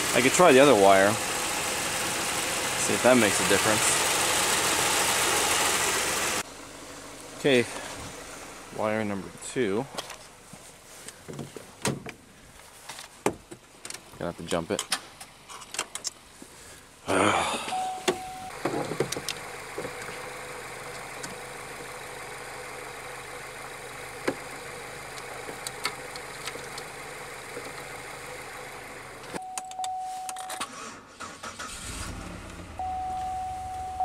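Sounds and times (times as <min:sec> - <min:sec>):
car engine cranking and running rough: 0:00.0 - 0:10.4, 0:17.6 - 0:29.5, 0:31.2 - 0:34.0
electronic warning chime: 0:17.7 - 0:18.6, 0:29.4 - 0:30.5, 0:32.8 - 0:34.0.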